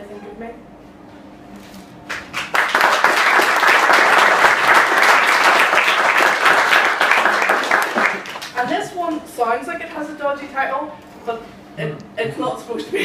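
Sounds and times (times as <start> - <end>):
audience applauding: 2.1 - 8.6.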